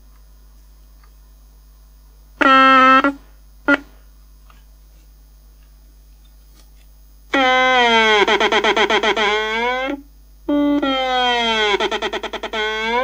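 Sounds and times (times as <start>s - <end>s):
faint mains hum: 0.0s - 13.0s
loud buzzing tone from speaker: 2.3s - 4.1s, 7.3s - 13.0s.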